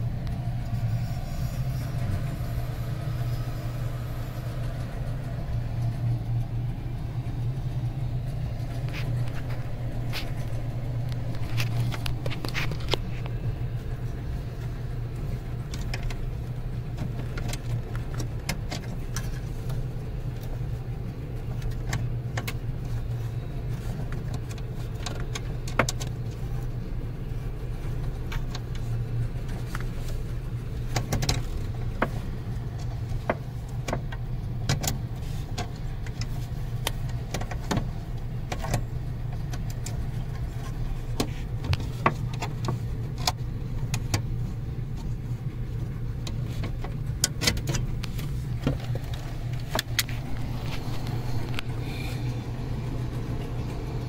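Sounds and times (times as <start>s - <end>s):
low mechanical hum: 0.0s - 54.0s.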